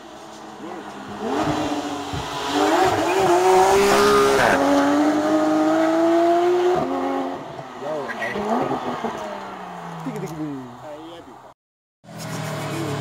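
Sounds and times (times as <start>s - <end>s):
rally car engine accelerating: 0.6s - 9.4s.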